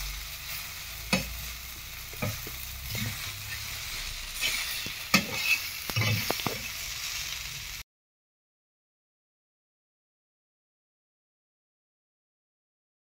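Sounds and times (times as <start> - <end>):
food sizzling: 0.0 - 7.8
metal spatula scraping and tapping: 1.1 - 1.5, 2.1 - 6.7.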